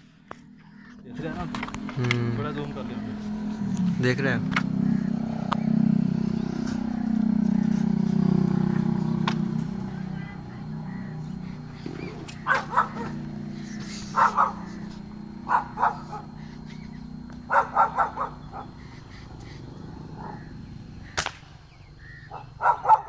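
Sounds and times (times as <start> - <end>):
low steady hum: 0.0 - 22.6
dog barking: 12.3 - 13.4, 14.0 - 16.5, 17.5 - 18.9, 20.1 - 20.5, 22.3 - 23.0
air rifle shot: 21.1 - 21.8.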